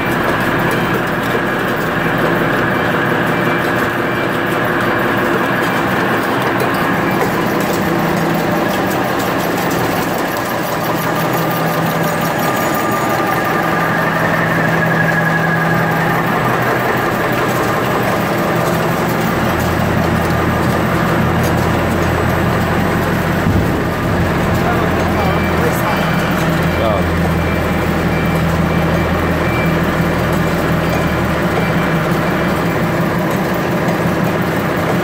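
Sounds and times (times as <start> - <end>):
motor hum: 0.0 - 35.0
rapid mechanical clatter: 0.0 - 35.0
deeper hum: 6.7 - 28.8.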